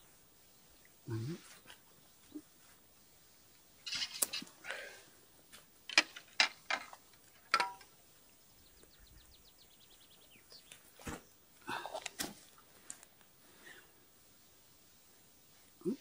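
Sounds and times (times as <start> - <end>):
dry reeds and grass crackling: 3.8 - 4.9.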